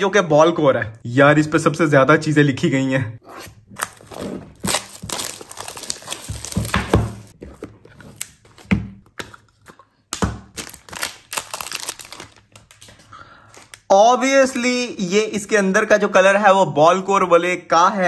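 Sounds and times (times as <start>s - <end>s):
plastic wrap crinkling and tearing: 3.8s - 7.4s, 10.4s - 13.9s.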